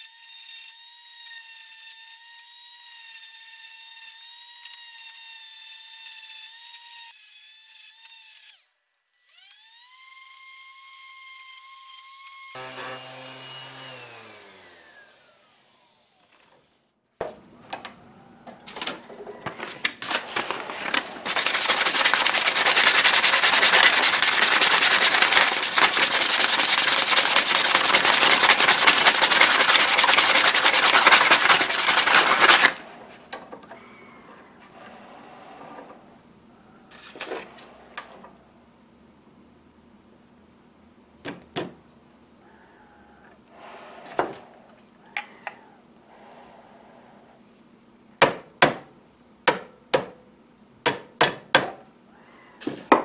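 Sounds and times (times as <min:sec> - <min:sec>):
sandpaper rubbing on wood: 0:20.1 - 0:33.2.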